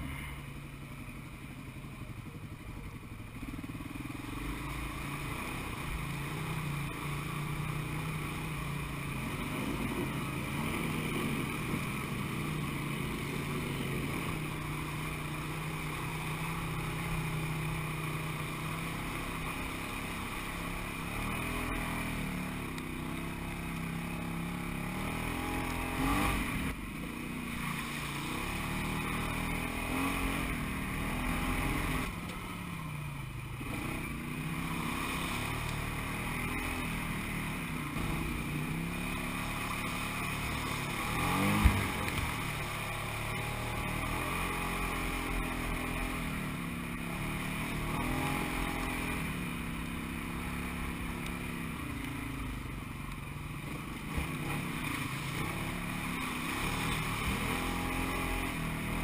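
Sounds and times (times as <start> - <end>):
utility vehicle engine under load: 0.0 - 59.0.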